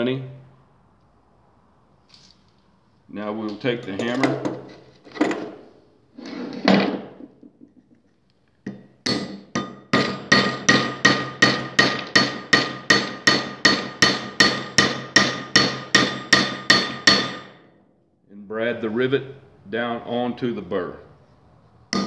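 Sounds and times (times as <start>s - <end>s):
hammer tapping on metal: 8.7s - 17.5s.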